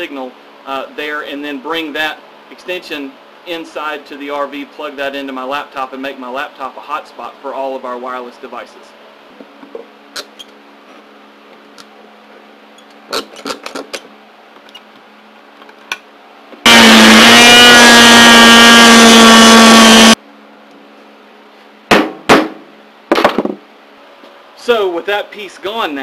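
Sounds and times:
oscillating multi-tool buzzing: 0:16.7 - 0:20.2
sharp knocks on plastic shell: 0:21.9 - 0:23.6.

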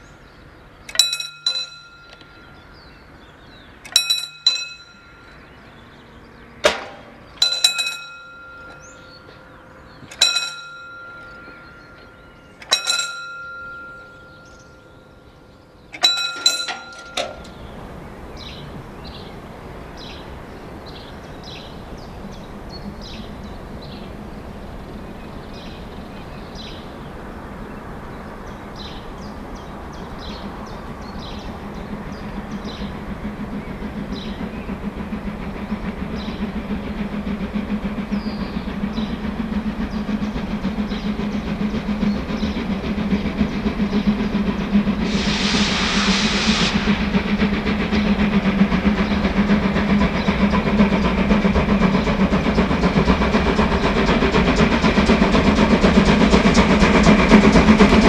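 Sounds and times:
steam locomotive running: 0:00.0 - 0:58.0
steam whistle blast: 0:45.0 - 0:47.4.

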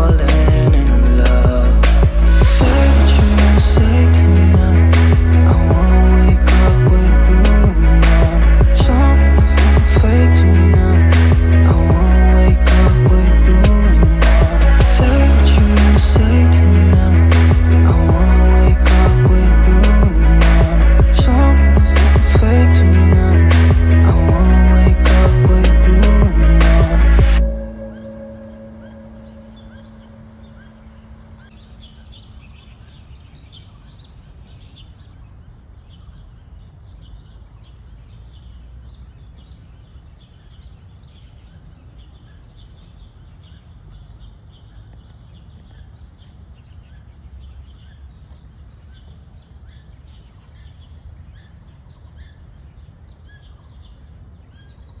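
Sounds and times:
small birds chirping: 0:27.7 - 0:55.0.

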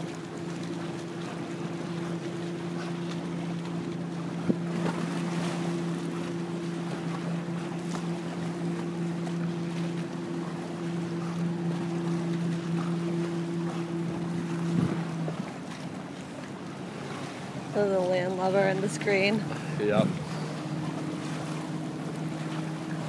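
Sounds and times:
low engine drone: 0:00.0 - 0:23.0
small waves washing: 0:00.0 - 0:23.0
wind buffeting microphone: 0:14.0 - 0:15.4, 0:19.2 - 0:20.4.

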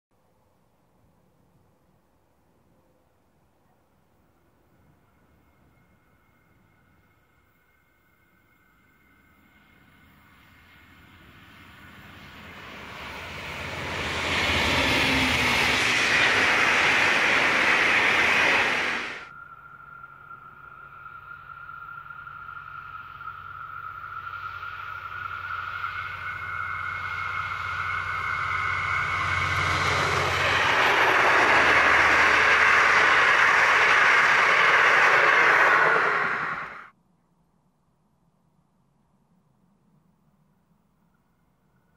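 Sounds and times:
diesel locomotive drone: 0:03.9 - 0:36.9
train running over rails: 0:04.5 - 0:36.9.

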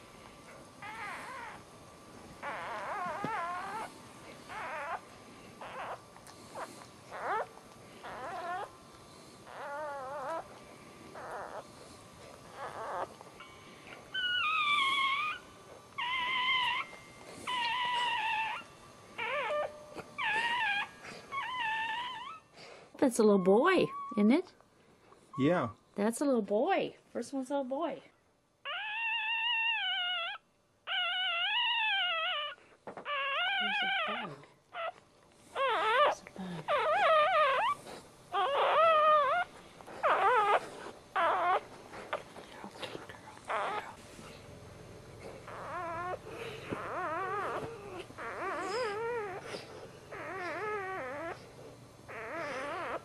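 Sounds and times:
puppy crying in mewing squeals: 0:00.8 - 0:01.6, 0:02.4 - 0:03.9, 0:04.5 - 0:05.0, 0:05.6 - 0:06.0, 0:06.6 - 0:08.7, 0:09.5 - 0:10.4, 0:11.2 - 0:11.6, 0:12.5 - 0:22.5, 0:23.1 - 0:24.3, 0:28.6 - 0:42.2, 0:43.5 - 0:44.0, 0:45.4 - 0:51.5, 0:52.1 - 0:53.0.

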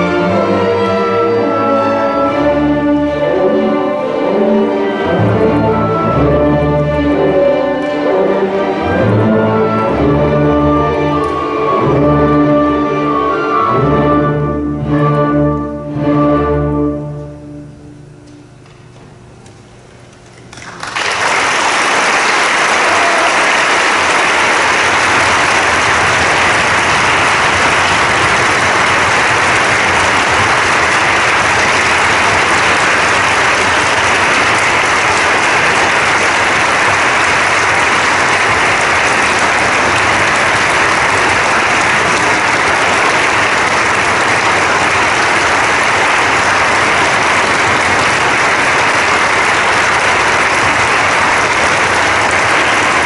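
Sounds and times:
audience applauding: 0:09.8 - 0:13.8, 0:20.6 - 0:53.0.

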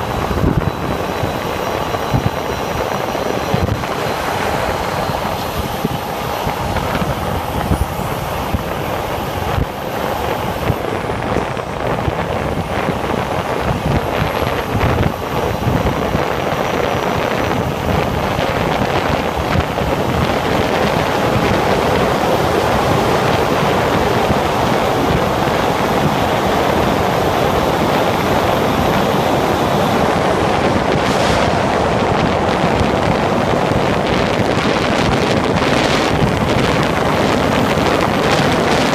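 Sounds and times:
motorcycle road noise: 0:00.0 - 0:38.9
wind rush: 0:00.0 - 0:38.9.

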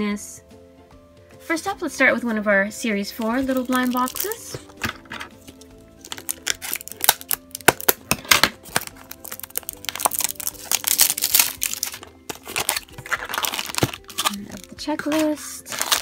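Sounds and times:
soft background music: 0:00.0 - 0:16.0
plastic lid clicks and crackles: 0:04.1 - 0:16.0.

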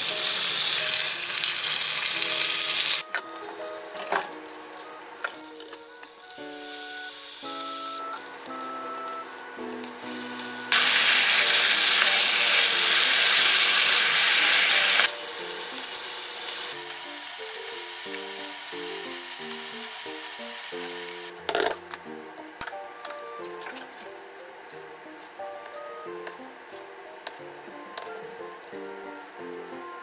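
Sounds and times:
meat sizzling in a frying pan: 0:00.0 - 0:03.1, 0:05.3 - 0:08.5, 0:09.8 - 0:21.3
light background music: 0:00.0 - 0:30.0.

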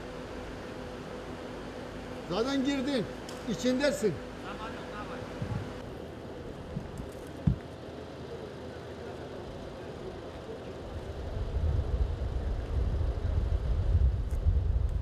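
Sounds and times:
wind buffeting microphone: 0:11.3 - 0:15.0.

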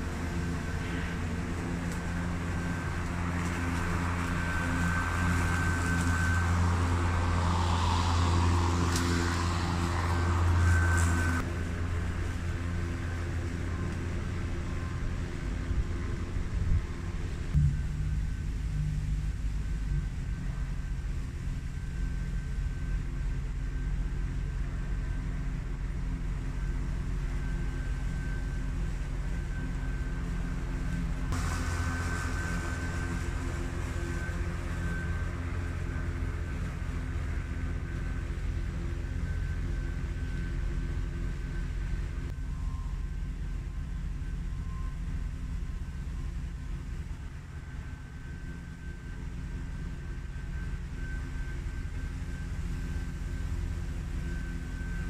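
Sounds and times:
lawn mower cutting grass: 0:00.0 - 0:42.4, 0:43.3 - 0:55.0
low rumble: 0:14.6 - 0:23.1.

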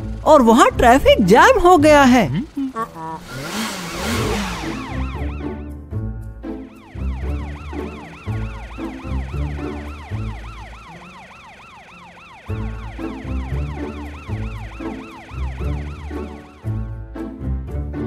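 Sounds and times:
emergency siren yelping: 0:03.9 - 0:05.6, 0:06.6 - 0:16.8.

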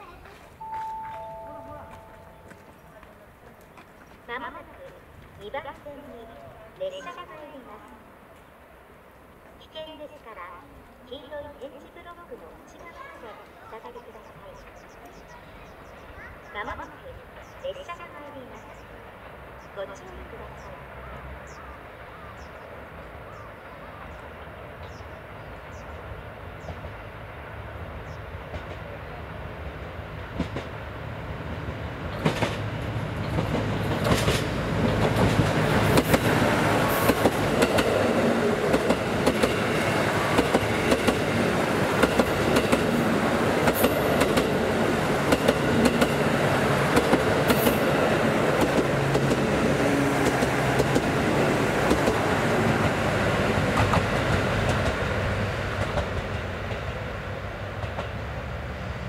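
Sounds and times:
diesel train engine drone: 0:00.5 - 0:12.7, 0:13.8 - 0:59.0
wheels clattering over rail joints: 0:32.0 - 0:49.6.

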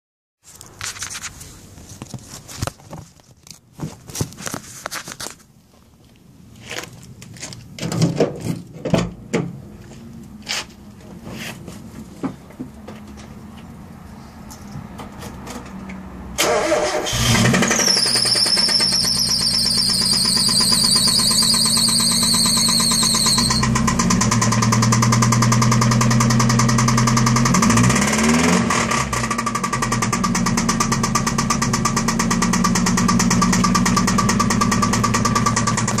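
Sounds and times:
high-pitched engine squeal: 0:16.4 - 0:23.8
car engine idling: 0:16.7 - 0:27.6, 0:29.1 - 0:36.0
fast even engine ticking: 0:17.2 - 0:36.0.

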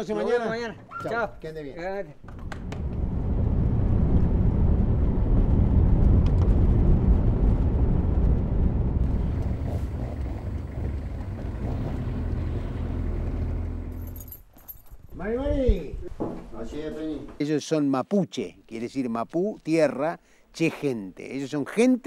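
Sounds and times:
vehicle engine and road noise: 0:02.3 - 0:14.8.

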